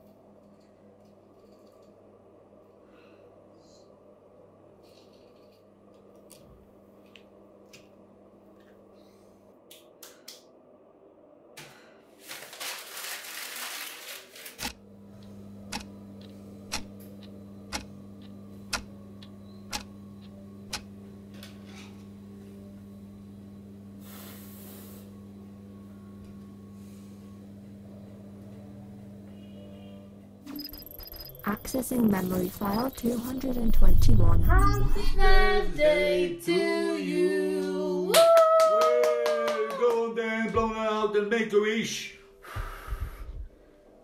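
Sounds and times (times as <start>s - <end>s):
steady low hum: 14.6s - 38.1s
sharp ticks: 15.7s - 20.9s, 30.6s - 34.0s
loud hiss of noise: 24.0s - 25.1s.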